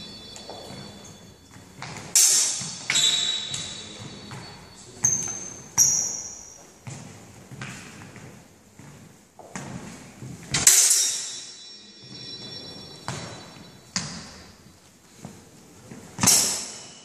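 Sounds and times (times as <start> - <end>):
sword blades clashing: 2.1 - 3.8, 10.6 - 11.7, 16.2 - 17.0.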